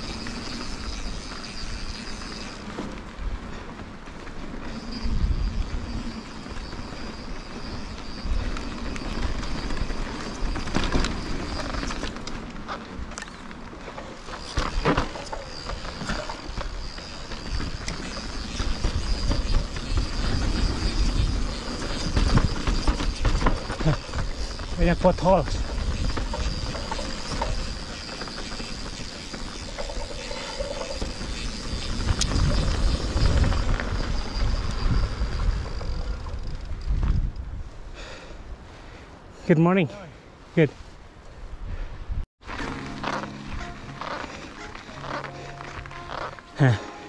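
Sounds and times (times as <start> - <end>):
bike clicks and rattles: 0.0 - 37.5, 42.5 - 46.8
bike tyres on dirt: 0.0 - 39.4, 40.3 - 47.0
wind rumble on microphone: 3.1 - 12.1, 16.0 - 28.0, 28.6 - 38.7
thin high whine: 14.3 - 36.8, 42.4 - 47.0.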